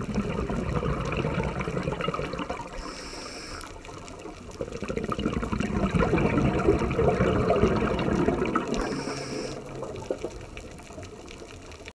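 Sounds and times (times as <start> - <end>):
bubbles gurgling underwater: 0.0 - 3.0, 3.7 - 11.9
high hiss: 2.8 - 3.8, 8.8 - 9.7.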